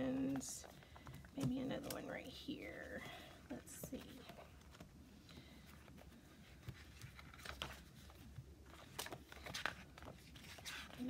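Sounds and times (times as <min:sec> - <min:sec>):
paper rustling: 0:03.0 - 0:11.0.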